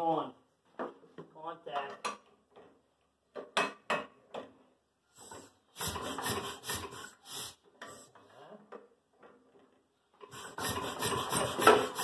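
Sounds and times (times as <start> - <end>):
engine turning over roughly: 5.8 - 7.2, 10.3 - 12.0.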